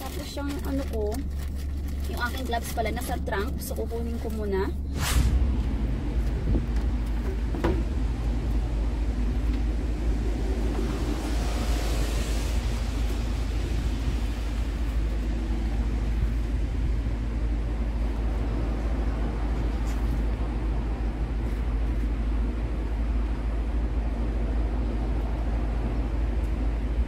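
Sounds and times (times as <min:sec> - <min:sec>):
low rumble of street traffic: 0:00.0 - 0:27.0
vehicle passing: 0:02.1 - 0:21.8.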